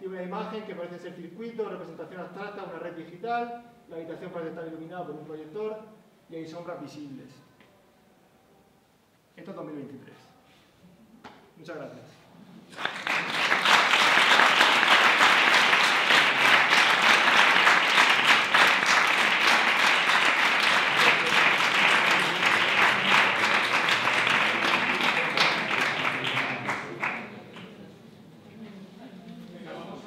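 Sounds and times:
audience applauding: 12.7s - 27.7s.

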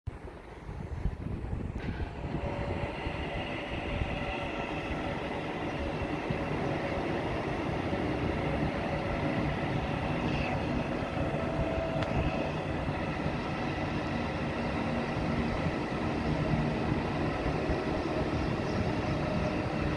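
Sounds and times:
electric train rumbling past: 0.1s - 19.9s
high whining train tones: 0.2s - 19.9s.

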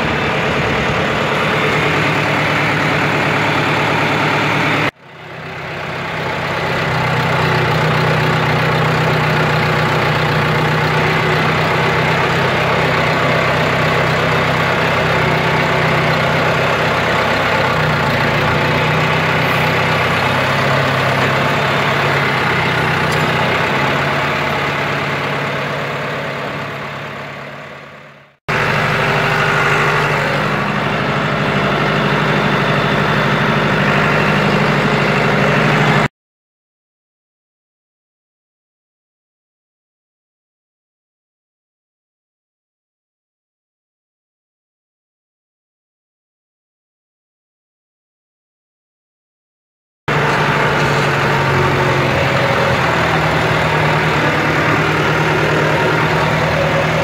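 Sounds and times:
tractor engine running: 0.0s - 36.1s, 50.1s - 57.0s.

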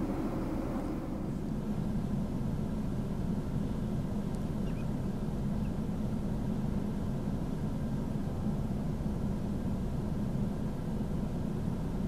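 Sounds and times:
low rumbling noise: 0.0s - 1.9s.

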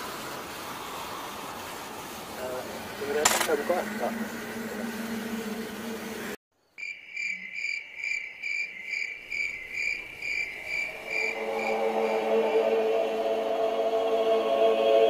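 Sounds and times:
vehicle engine humming: 2.5s - 6.4s
insect pulsing trill: 6.7s - 12.1s.

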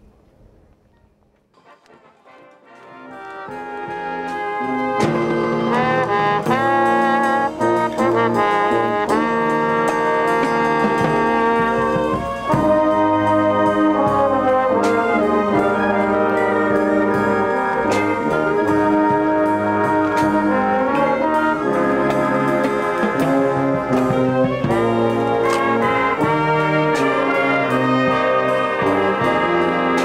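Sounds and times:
trumpets and trombones chords: 1.6s - 30.0s
drum strikes: 2.9s - 30.0s.

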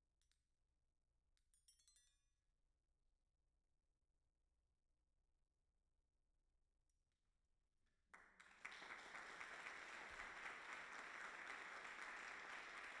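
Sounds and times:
audience applauding: 8.2s - 13.0s.

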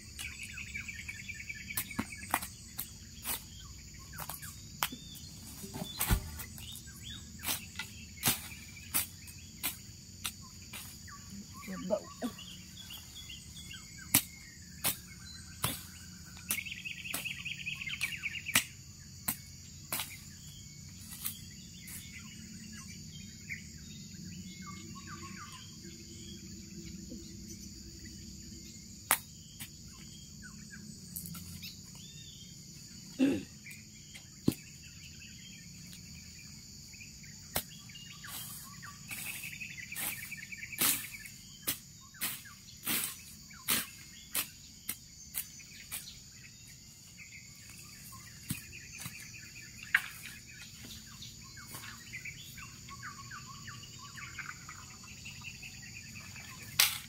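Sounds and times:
high-pitched insect drone: 0.0s - 57.0s
machete chopping brush: 1.7s - 5.0s, 5.6s - 6.8s, 7.4s - 11.0s, 13.6s - 20.4s, 29.1s - 29.7s, 37.5s - 46.2s, 56.7s - 57.0s.

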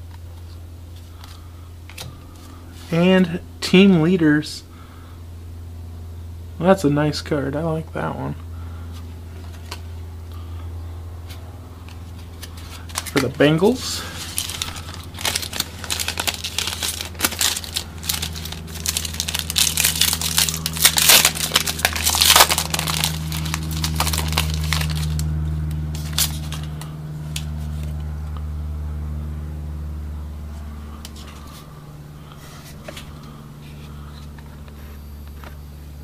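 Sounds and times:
steady low hum: 0.0s - 36.0s
foil wrapper tearing and crinkling: 12.0s - 27.9s.

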